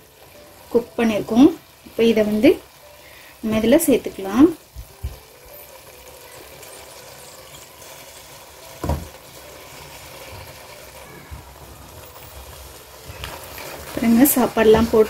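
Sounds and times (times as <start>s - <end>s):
low hiss from pan: 0.0s - 15.0s
rice dropping soft thump: 8.8s - 9.2s.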